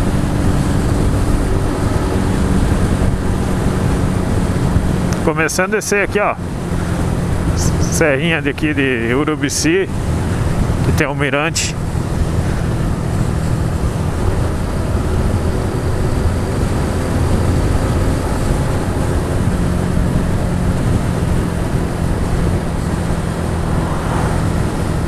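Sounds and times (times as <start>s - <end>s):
motorcycle engine running: 0.0s - 8.2s, 11.8s - 25.0s
wind noise on microphone: 11.8s - 25.0s.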